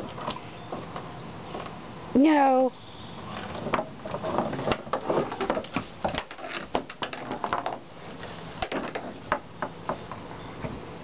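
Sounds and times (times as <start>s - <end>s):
clicks and scuffs on wooden deck: 3.3s - 10.8s.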